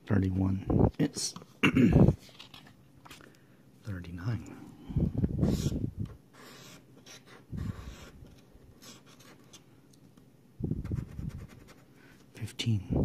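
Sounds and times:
scratching lottery ticket: 0:10.8 - 0:12.0.

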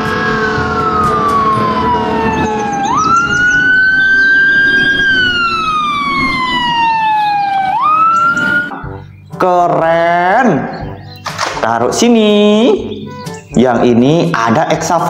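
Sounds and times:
fire engine siren wailing: 0:00.0 - 0:09.0.

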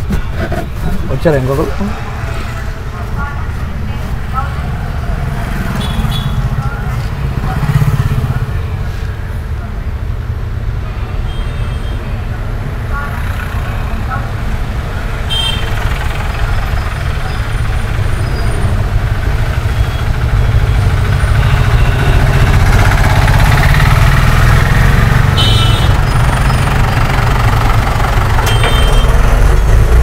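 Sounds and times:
road noise: 0:00.0 - 0:30.0
low engine rumble: 0:26.0 - 0:30.0.

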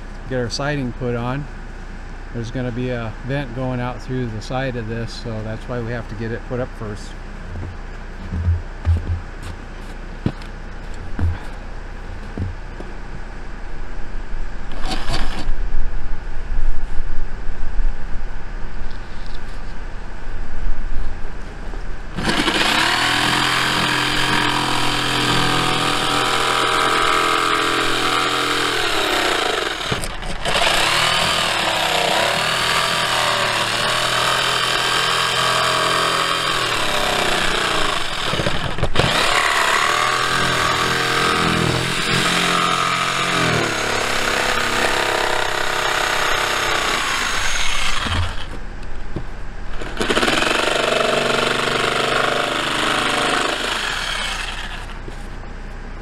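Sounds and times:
rumbling bumps on microphone: 0:07.4 - 0:13.3
jigsaw motor whine: 0:22.2 - 0:48.6, 0:49.8 - 0:55.0.

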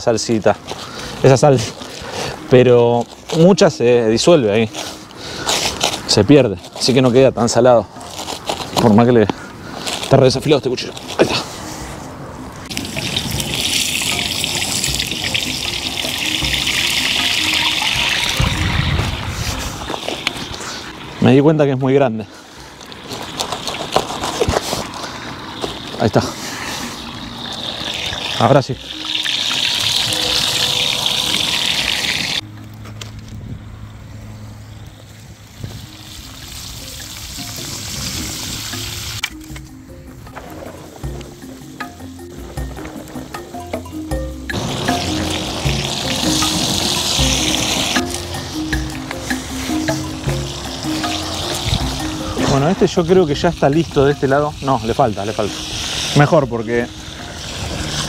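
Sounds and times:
background music: 0:00.0 - 0:22.7, 0:25.0 - 0:34.6, 0:36.0 - 0:58.0
fish sizzling in hot oil: 0:12.7 - 0:19.2, 0:22.6 - 0:32.4, 0:35.8 - 0:39.2, 0:44.5 - 0:52.4, 0:53.1 - 0:58.0.

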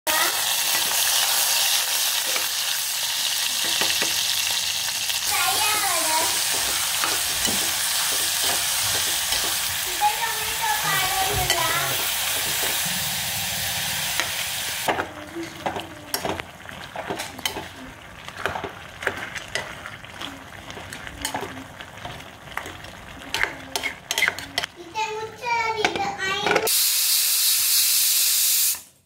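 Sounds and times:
onions sizzling in hot oil: 0:00.1 - 0:25.9, 0:26.7 - 0:29.0
metal spoon scraping pot: 0:15.4 - 0:24.7.

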